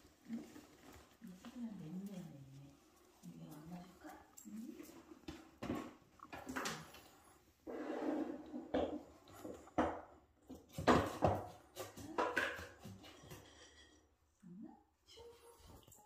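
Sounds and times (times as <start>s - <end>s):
dishes knocking and clattering: 5.2s - 7.1s, 8.2s - 14.1s.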